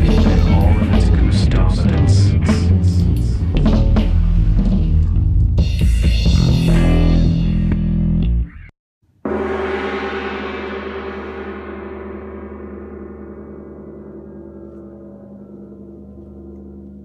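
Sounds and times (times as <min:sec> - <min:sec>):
band music: 0:00.0 - 0:08.6
gong struck and ringing: 0:09.2 - 0:17.0.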